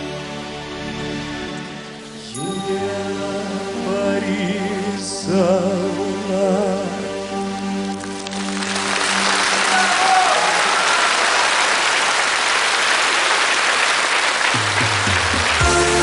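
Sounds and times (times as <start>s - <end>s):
audience applauding: 7.9s - 16.0s
band music with bass line: 14.6s - 16.0s.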